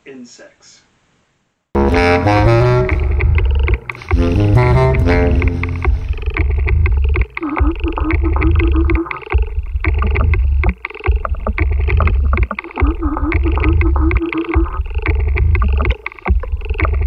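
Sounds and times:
deep low pulses: 1.8 - 7.3.

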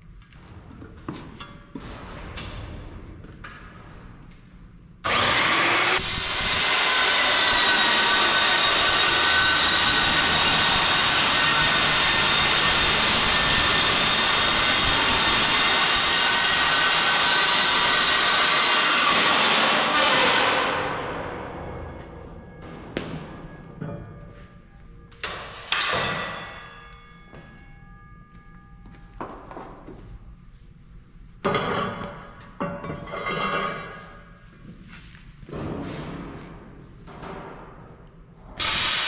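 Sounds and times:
electric grinder whining: 5.1 - 19.0.

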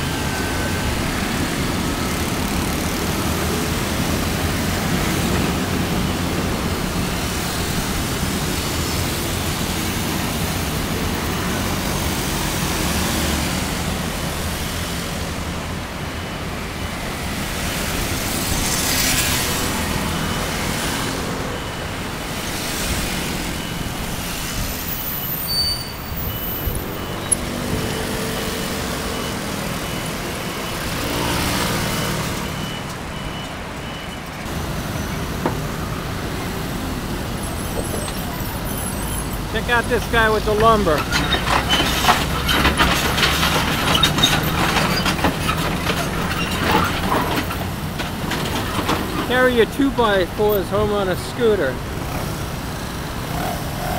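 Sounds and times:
motor scooters passing: 0.0 - 25.2, 26.9 - 33.8, 51.6 - 53.9.

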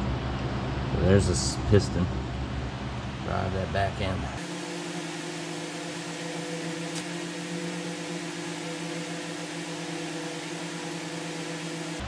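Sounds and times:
buzzy machine hum: 4.2 - 12.0.

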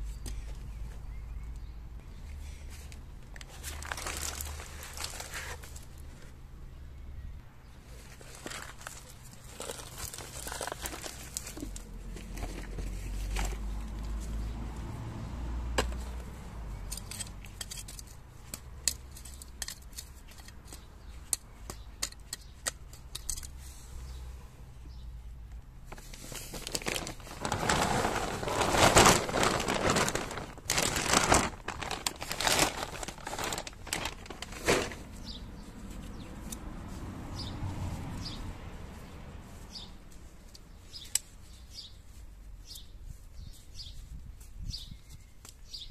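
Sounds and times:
soil rustling and knocking: 3.4 - 5.9, 8.1 - 13.7, 25.9 - 35.2
compost crunching into hole: 26.4 - 35.0.

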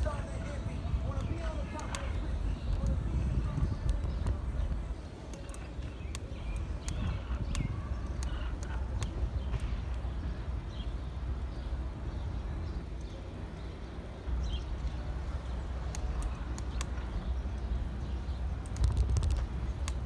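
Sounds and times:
bicycle rolling on pavement: 0.0 - 20.0
wind buffeting microphone: 0.0 - 20.0
bike clicks and rattles: 1.0 - 10.8, 14.4 - 20.0.

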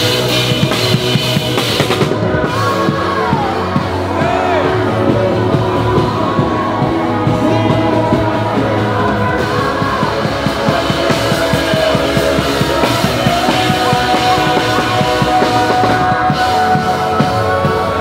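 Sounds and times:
person singing: 0.0 - 18.0
rock band playing worship song: 0.0 - 18.0.

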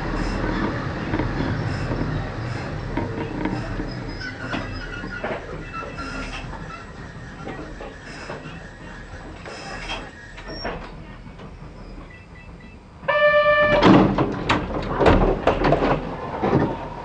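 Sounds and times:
knocks and clatter: 0.2 - 6.8, 13.8 - 16.8.

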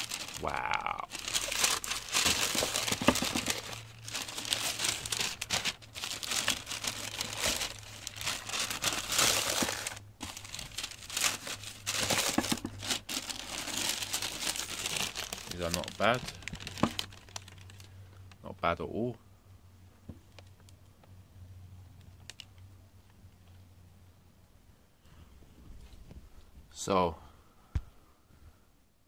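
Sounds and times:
tissue paper crinkling: 0.0 - 17.9.

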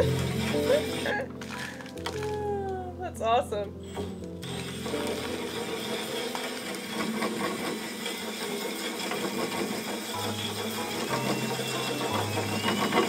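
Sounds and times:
drill motor whirring: 0.0 - 2.2, 3.8 - 13.0
bristles scrubbing against metal tube: 4.8 - 13.0.

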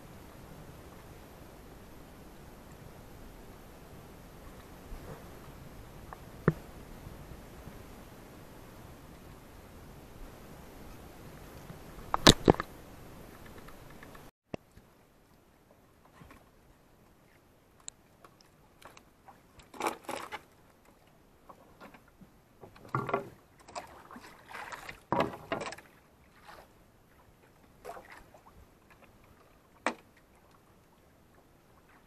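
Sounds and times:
water splashing: 23.6 - 26.7, 27.4 - 30.7.

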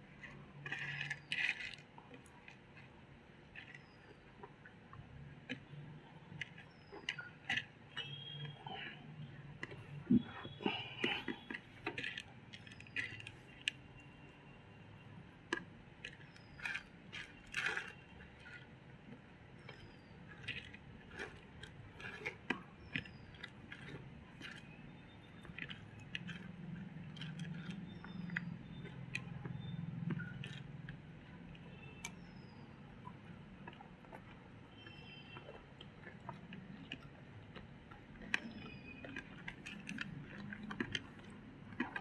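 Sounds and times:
fingers mixing sticky rice: 0.0 - 14.5, 15.2 - 42.0.

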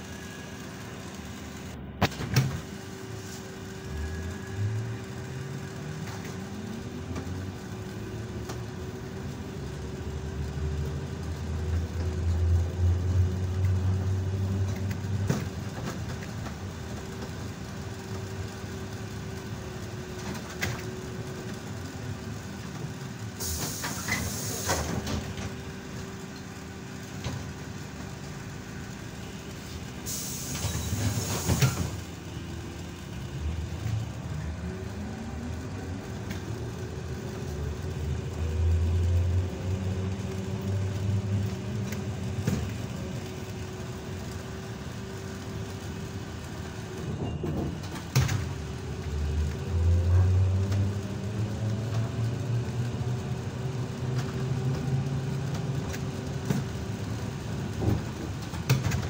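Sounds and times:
steady running rumble: 0.0 - 23.4, 32.0 - 47.4
trolleybus motor whine: 0.0 - 59.0
compressed air hisses: 23.4 - 24.9, 30.0 - 32.0.

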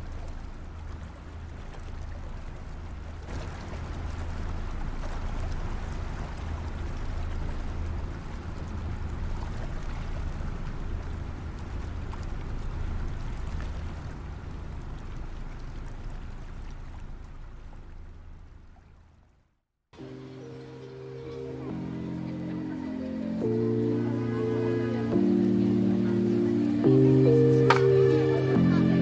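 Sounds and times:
rushing water-like noise: 0.0 - 19.3, 20.0 - 29.0
steady low rumble: 0.0 - 19.4.

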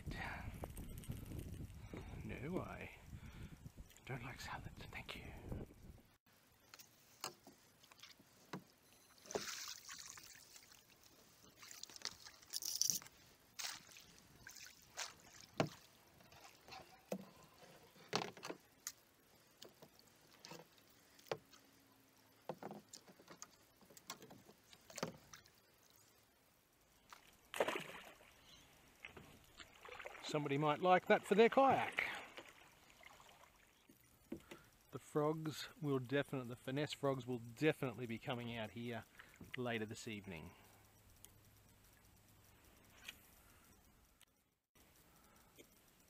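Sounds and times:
crate splashing into water: 27.5 - 28.3.

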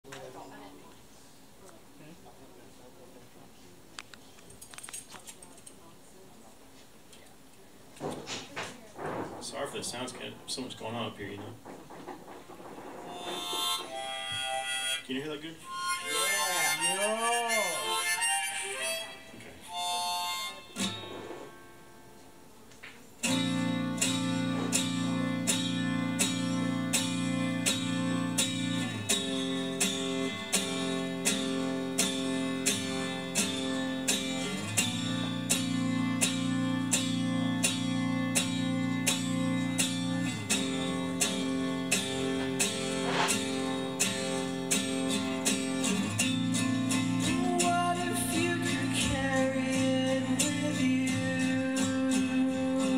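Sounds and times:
acoustic guitar strumming: 9.0 - 52.9
harmonica playing: 13.0 - 22.5, 23.2 - 50.6.

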